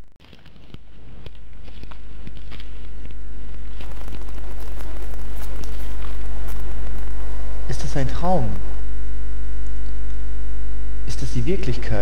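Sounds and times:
faint clicks and crackles: 0.1s - 7.7s
deep low hum: 0.9s - 11.9s.

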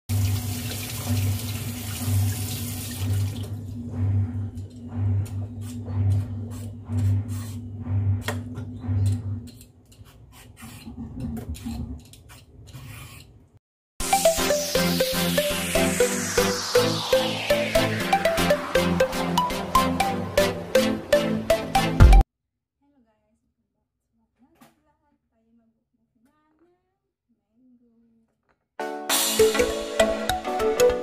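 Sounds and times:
kitchen tap running: 0.1s - 3.5s
electronic intro music: 14.0s - 22.2s, 29.1s - 31.0s.

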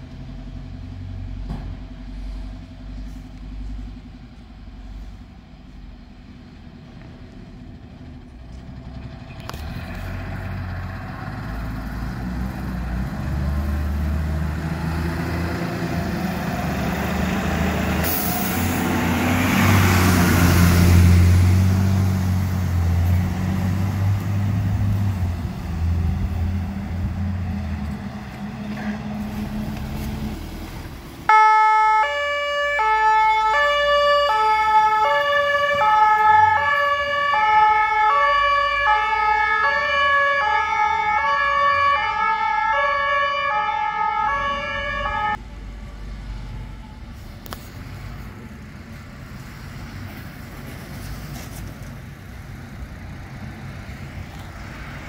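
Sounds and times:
fire engine diesel engine: 0.0s - 55.0s
two-tone emergency siren: 31.3s - 45.4s.

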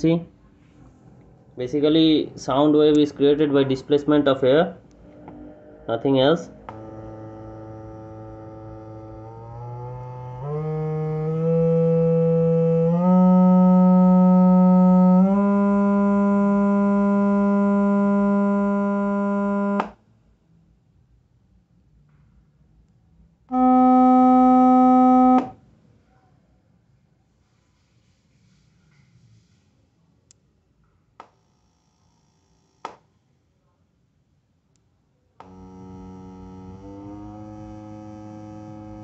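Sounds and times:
low harsh test tone: 0.0s - 19.8s, 23.5s - 25.6s, 35.4s - 39.0s.

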